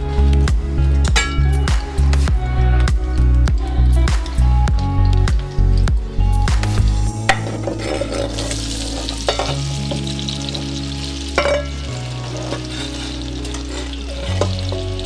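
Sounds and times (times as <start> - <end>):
background music with low notes: 0.0 - 15.0
food frying in hot oil: 4.2 - 15.0.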